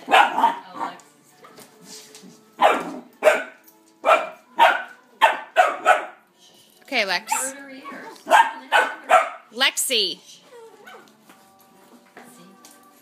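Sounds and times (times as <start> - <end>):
puppy barking: 0.0 - 1.0, 2.6 - 6.2, 8.2 - 9.5, 10.8 - 11.1.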